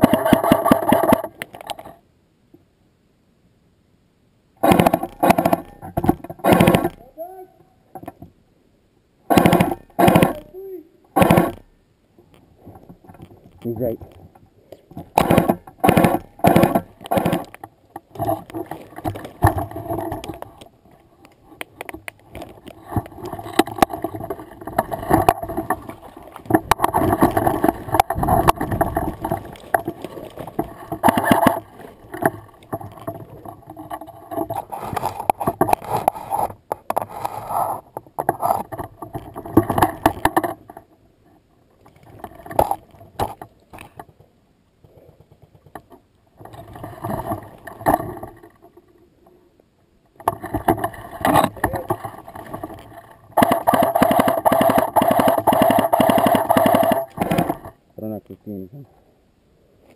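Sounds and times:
clicks and knocks: 0:21.3 - 0:37.1
rustling through dry leaves and brush: 0:22.2 - 0:36.5.

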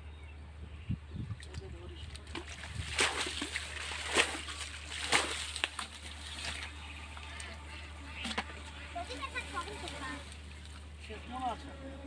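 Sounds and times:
hands splashing in muddy water: 0:01.3 - 0:06.7.

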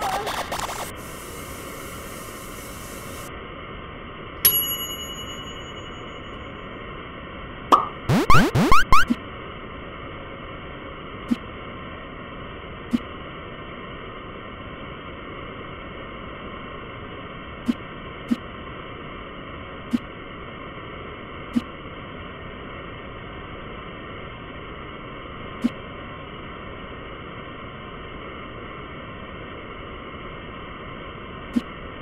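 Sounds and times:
static-like hiss: 0:00.0 - 0:04.3.

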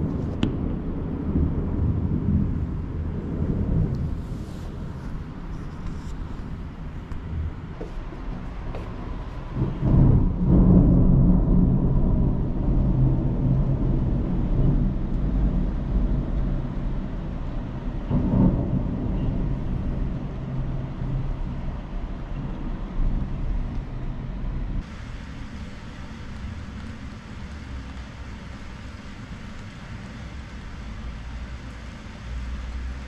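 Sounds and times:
rolling thunder: 0:00.0 - 0:05.4, 0:09.0 - 0:25.0.

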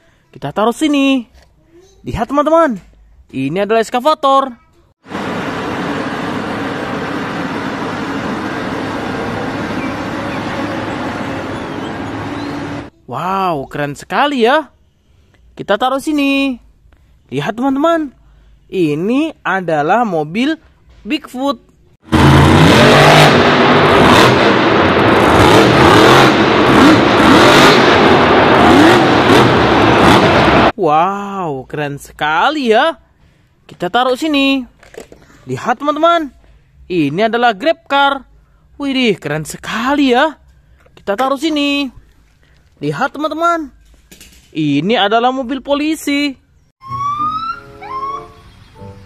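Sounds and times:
broad rushing noise: 0:05.0 - 0:12.9, 0:22.1 - 0:30.8
excavator engine hum: 0:05.1 - 0:12.9
monster truck engine revving: 0:05.1 - 0:12.9, 0:22.1 - 0:30.8.

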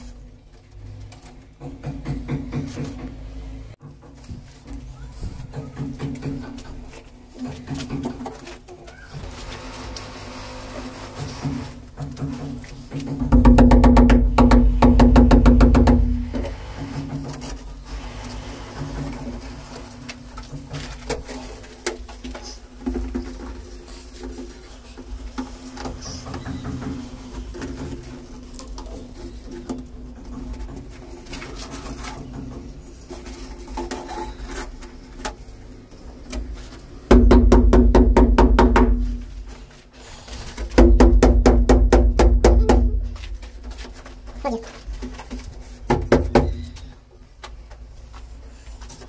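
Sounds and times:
brush scrubbing against wall: 0:09.2 - 0:35.6.

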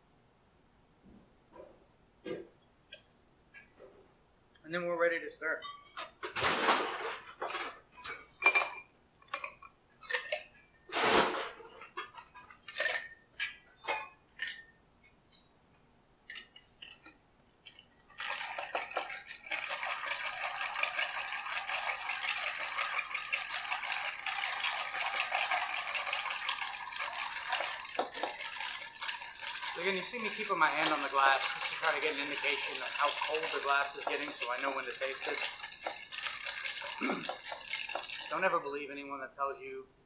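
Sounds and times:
bar spoon stirring ice: 0:11.8 - 0:13.6, 0:16.3 - 0:38.5
ice cubes clinking into glass: 0:17.7 - 0:38.4.

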